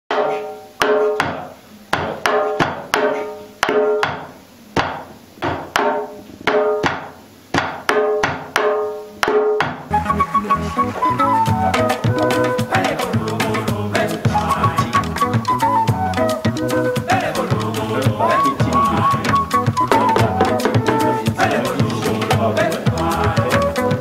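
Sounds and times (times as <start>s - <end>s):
music with several instruments: 8.6s - 24.0s
wooden sticks clacking on drum: 14.8s - 22.4s.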